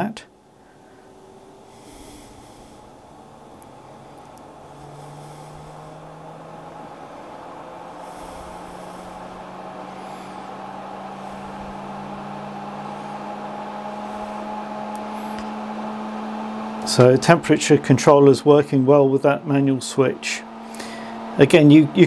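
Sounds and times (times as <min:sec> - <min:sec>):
fans humming: 0:00.0 - 0:22.0.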